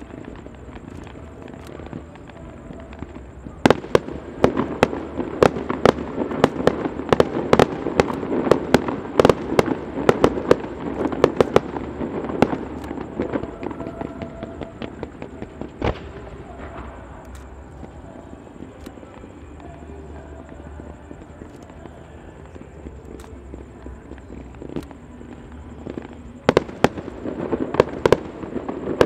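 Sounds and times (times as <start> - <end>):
fireworks bangs: 0.0 - 29.0.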